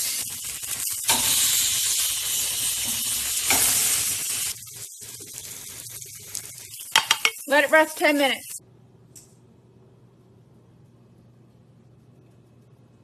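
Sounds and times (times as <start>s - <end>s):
steaks sizzling on grill: 0.0s - 8.6s.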